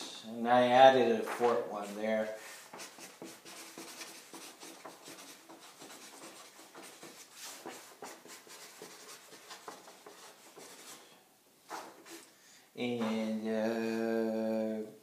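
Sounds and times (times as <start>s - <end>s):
marker scratching on paper: 1.8s - 12.3s.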